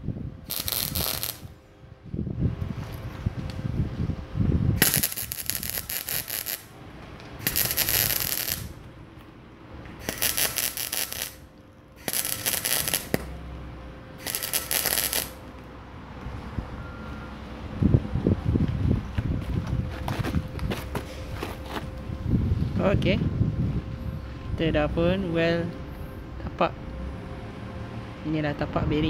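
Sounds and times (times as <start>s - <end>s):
welding arc crackling: 0.4s - 1.6s, 4.8s - 8.9s, 10.0s - 13.4s, 14.2s - 15.6s.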